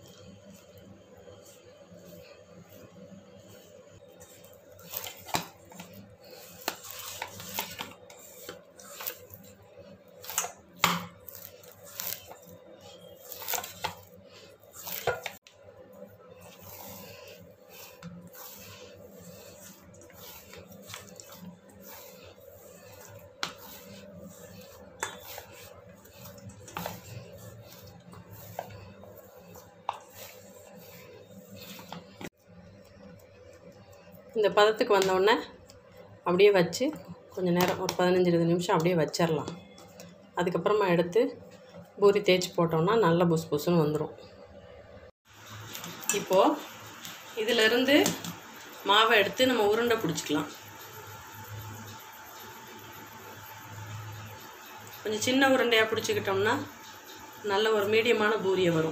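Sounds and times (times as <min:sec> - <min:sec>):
steady low hum: 0:00.0 - 0:34.8
dough squishing: 0:00.0 - 0:36.1.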